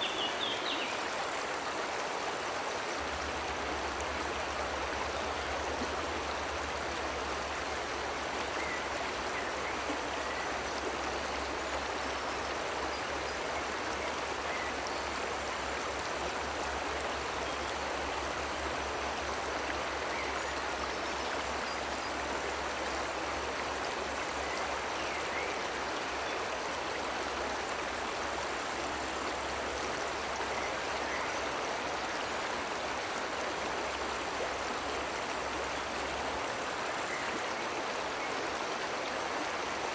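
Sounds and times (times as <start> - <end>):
waterfall rushing: 0.0 - 11.5.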